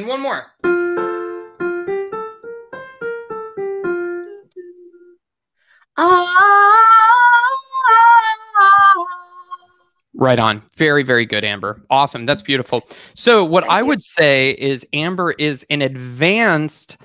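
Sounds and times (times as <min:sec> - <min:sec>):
piano run of notes: 0:00.6 - 0:05.1
woman singing vocal scale: 0:06.0 - 0:09.8, 0:13.6 - 0:14.0.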